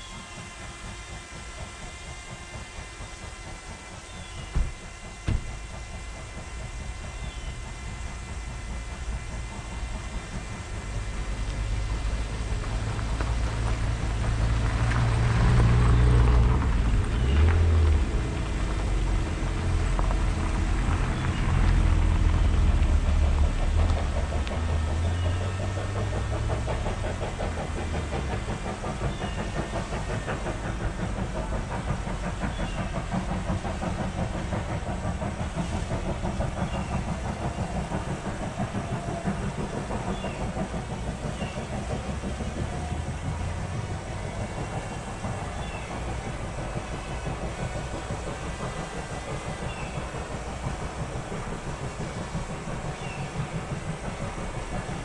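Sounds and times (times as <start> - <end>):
car rumbling on dirt road: 10.2 - 48.6.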